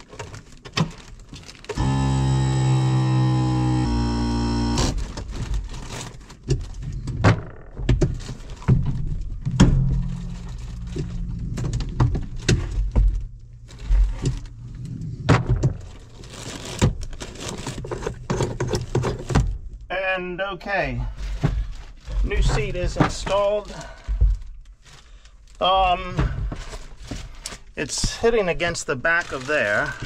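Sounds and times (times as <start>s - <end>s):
plastic wrapping rustling: 0.0s - 1.8s, 4.9s - 7.0s, 8.1s - 14.8s, 15.8s - 19.3s, 21.2s - 30.0s
knocks and thunks: 6.4s - 14.4s.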